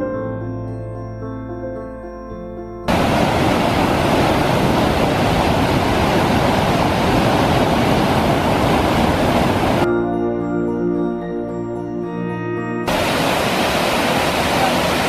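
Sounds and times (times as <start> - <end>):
piano music: 0.0 - 8.2, 9.8 - 14.7
whitewater rushing through canyon: 2.9 - 9.9, 12.9 - 15.0.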